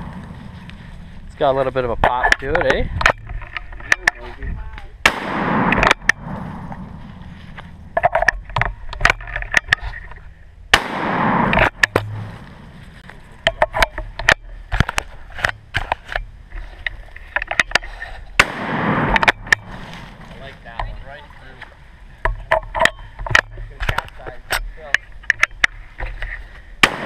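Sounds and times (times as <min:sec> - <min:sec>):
footsteps in dry leaves: 0:00.0 - 0:01.6, 0:06.2 - 0:08.0, 0:12.1 - 0:13.4, 0:19.6 - 0:21.2
shotgun blasts with echo: 0:05.0 - 0:07.2, 0:10.7 - 0:12.8, 0:18.4 - 0:20.4, 0:26.8 - 0:27.0.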